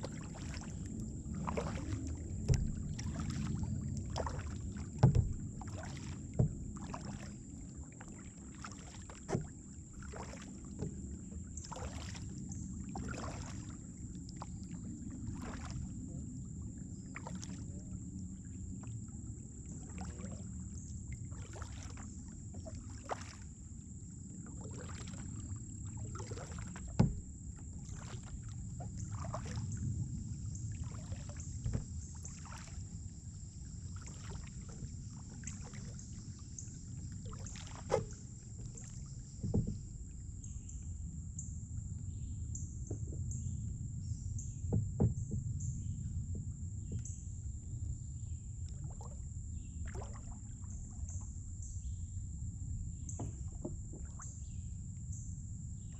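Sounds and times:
low rumble: 0.0 - 6.9
paddle splashing in water: 0.0 - 41.0, 42.8 - 47.7, 48.6 - 51.5, 52.9 - 54.8.

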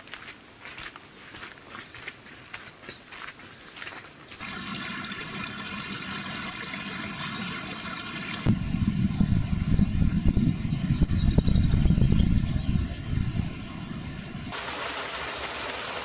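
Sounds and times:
deeper water rushing: 4.4 - 16.0
stream trickling over rocks: 4.4 - 16.0.

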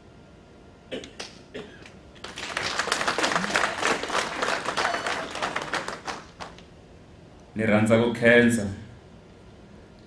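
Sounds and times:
audience applauding: 2.2 - 6.7.

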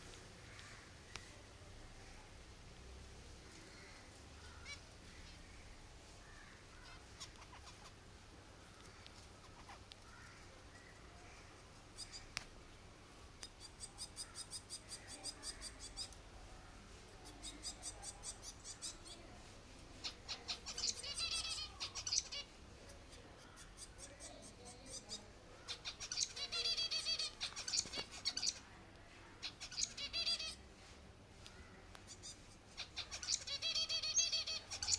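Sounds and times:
baby finch chirping: 4.5 - 4.9, 6.8 - 8.0, 12.0 - 12.3, 13.5 - 16.2, 17.2 - 19.2, 20.0 - 28.6, 29.4 - 30.6, 32.1 - 34.9.

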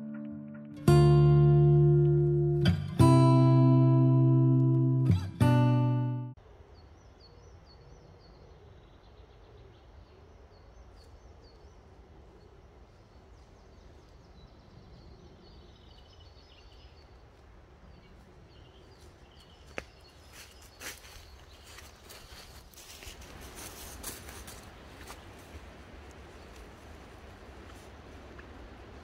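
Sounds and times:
small birds chirping: 6.6 - 29.0
footsteps crunching through dry leaves: 18.1 - 29.0.

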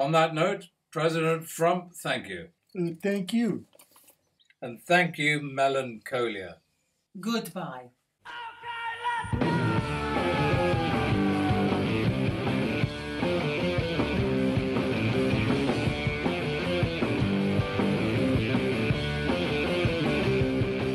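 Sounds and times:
rock music: 9.3 - 20.9.

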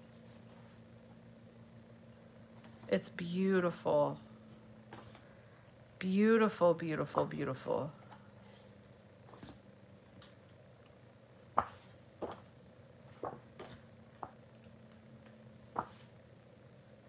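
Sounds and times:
faint steady hum: 0.0 - 17.0
paper sheets flicking and tapping: 13.2 - 14.4, 15.7 - 16.1.

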